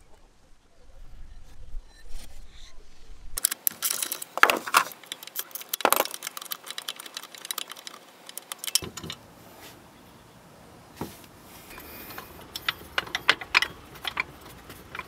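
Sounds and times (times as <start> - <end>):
socket ratchet clicking: 5.0 - 9.2
metallic tool clatter: 11.7 - 15.0.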